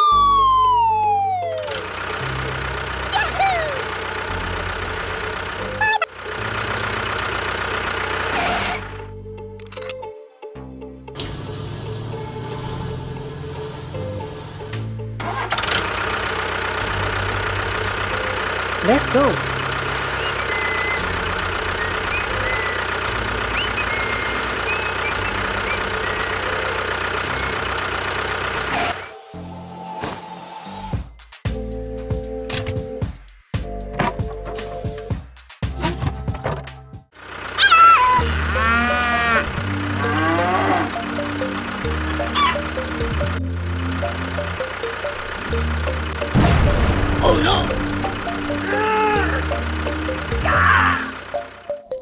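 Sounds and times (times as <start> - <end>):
small tractor motor rumbling: 0.2 - 9.6, 11.1 - 29.1, 35.8 - 52.0
engine idling: 0.3 - 9.7, 11.2 - 29.1, 34.2 - 51.9.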